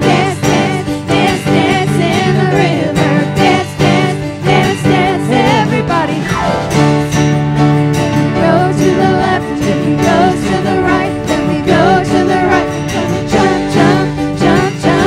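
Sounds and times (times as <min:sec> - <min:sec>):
voices singing together: 0:00.0 - 0:06.6, 0:08.4 - 0:15.0
acoustic guitar: 0:00.0 - 0:15.0
keyboard: 0:00.0 - 0:15.0.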